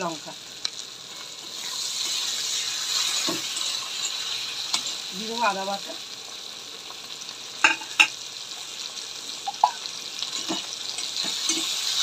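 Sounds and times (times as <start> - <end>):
food sizzling in hot oil: 0.0 - 12.0
steel spatula clinking: 3.0 - 5.0, 9.5 - 12.0.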